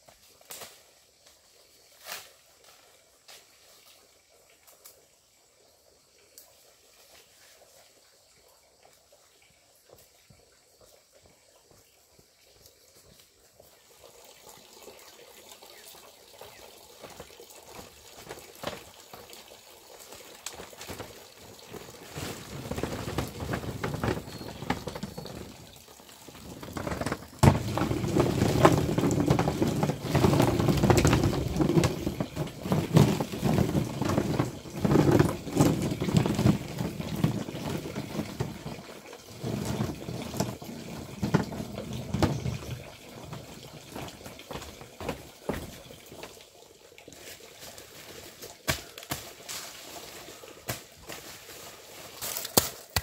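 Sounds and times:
water splashing and pouring: 13.6 - 53.0
knocks and handling sounds: 26.6 - 38.7.

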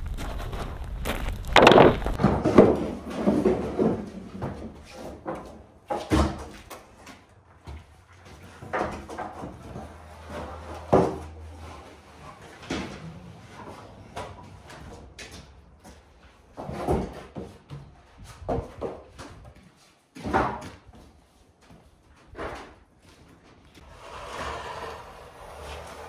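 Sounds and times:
wooden boards knocking: 1.4 - 4.0.

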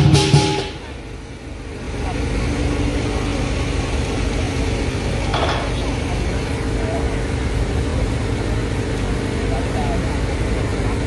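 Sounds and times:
drum and cymbals fast roll: 0.0 - 1.0.

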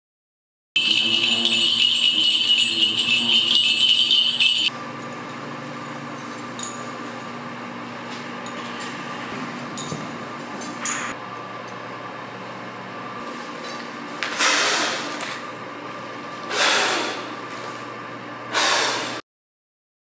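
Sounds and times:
light clinks: 0.8 - 4.7
small bells jingling: 0.8 - 4.7.

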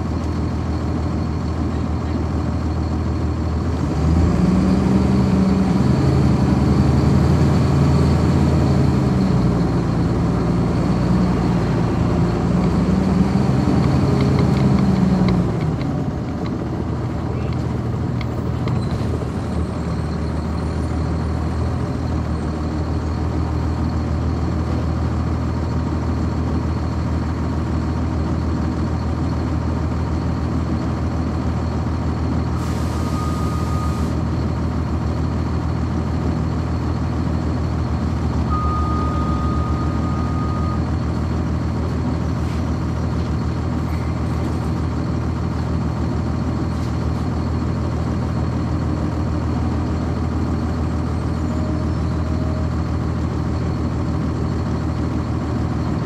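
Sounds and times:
diesel bus engine running: 0.0 - 56.0
beeps: 38.5 - 40.8.

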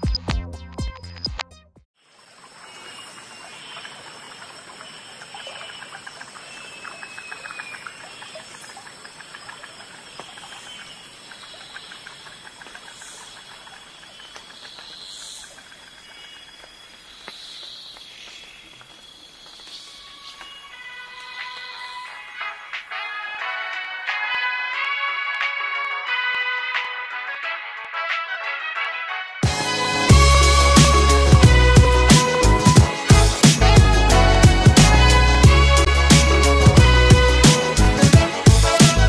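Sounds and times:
insect drone: 2.0 - 23.0.

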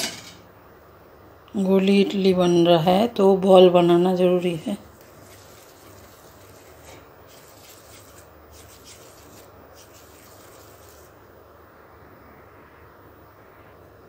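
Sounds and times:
low steady hum: 0.0 - 14.0
hands rolling dough: 4.8 - 11.2.

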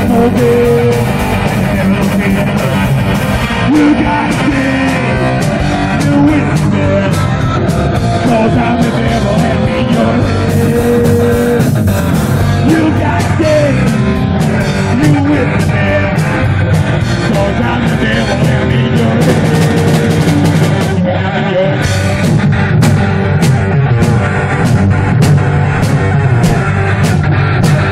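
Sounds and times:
drum kit with crashing cymbals: 0.0 - 21.0, 21.8 - 27.9
man singing: 0.0 - 22.3
electric bass: 0.0 - 27.9
electric guitar: 0.0 - 27.9.

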